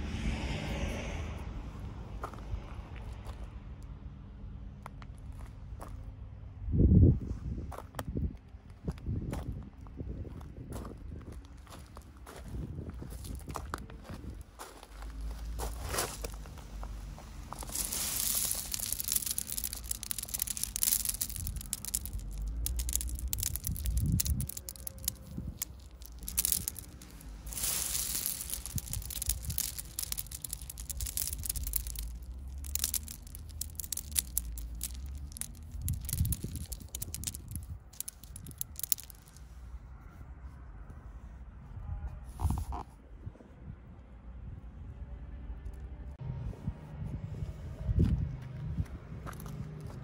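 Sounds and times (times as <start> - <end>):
gravel crunching and rattling: 7.4 - 39.6, 47.9 - 50.0.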